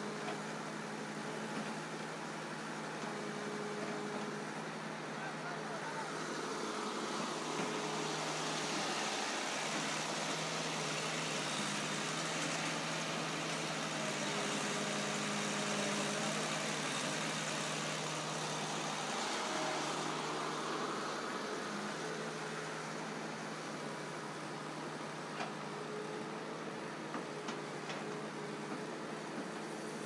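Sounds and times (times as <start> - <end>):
heavy diesel engines running: 0.0 - 30.0.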